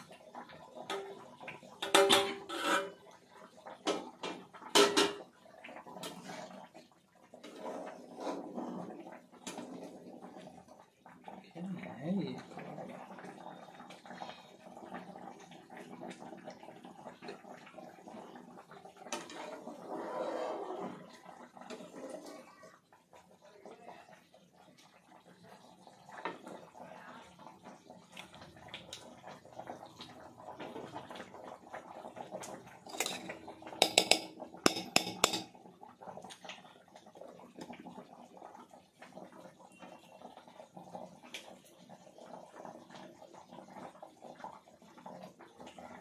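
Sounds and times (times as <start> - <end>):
steel utensils clinking: 32.9 - 35.5.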